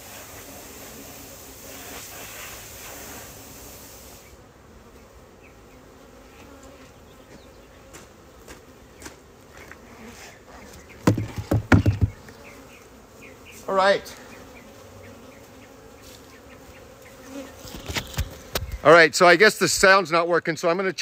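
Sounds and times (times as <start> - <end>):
hiss: 0.0 - 4.4
bees buzzing: 0.0 - 19.8.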